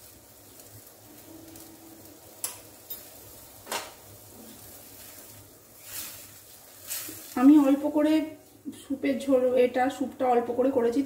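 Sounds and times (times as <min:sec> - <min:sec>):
utensil scraping wok: 0:00.0 - 0:07.9.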